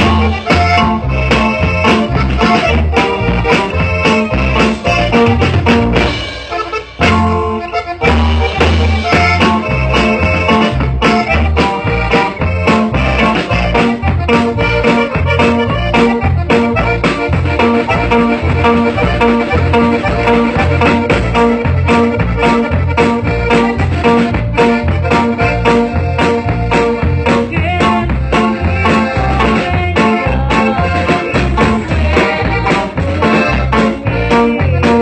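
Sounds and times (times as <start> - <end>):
accordion: 0.0 - 35.0
bass beat: 0.0 - 35.0
live band music: 0.0 - 35.0.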